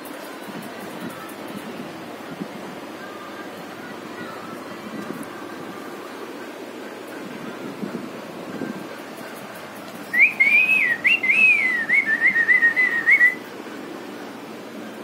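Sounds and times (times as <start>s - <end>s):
person whistling: 10.1s - 13.4s.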